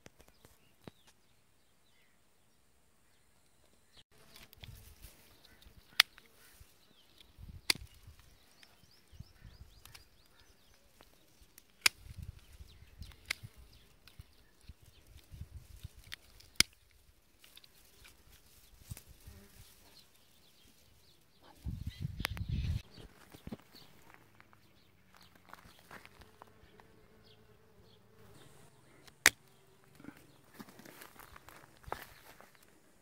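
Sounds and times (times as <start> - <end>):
rustling of stems and leaves: 4.1 - 8.8, 9.8 - 22.0, 28.3 - 33.0
sharp clicks and snaps: 15.1 - 18.2.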